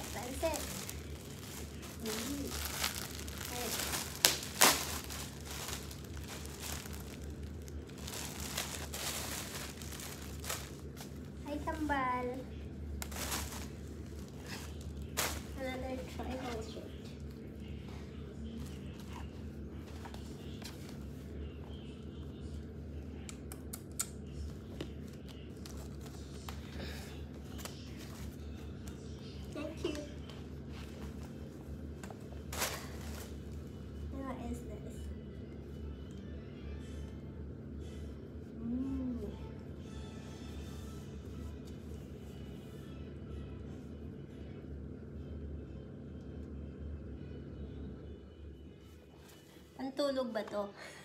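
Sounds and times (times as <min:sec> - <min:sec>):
fabric rustling: 0:00.0 - 0:11.3, 0:13.0 - 0:16.6
plastic bag crinkling: 0:00.0 - 0:11.4, 0:13.0 - 0:15.7
low room hum: 0:00.0 - 0:51.0.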